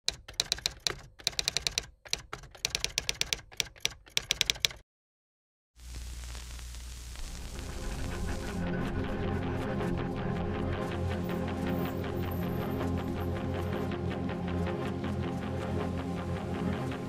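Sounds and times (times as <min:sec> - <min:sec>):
typewriter keys clacking: 0:00.0 - 0:04.8.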